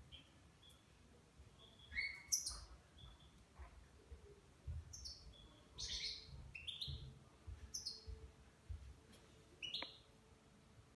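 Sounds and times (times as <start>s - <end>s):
bird chirping: 0.0s - 8.3s, 9.5s - 10.2s
soft low thumps: 3.0s - 5.5s, 6.3s - 9.1s.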